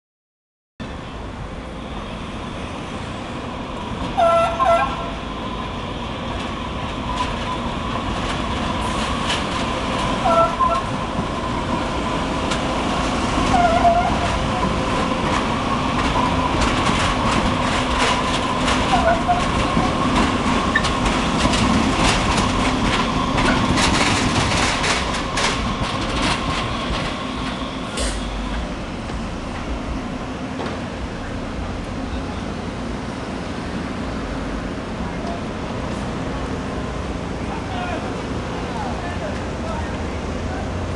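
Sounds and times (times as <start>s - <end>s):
light-rail car electric hum: 0.8s - 40.9s
wheels clattering on rails: 6.2s - 32.9s
short wheel squeals: 13.5s - 14.4s.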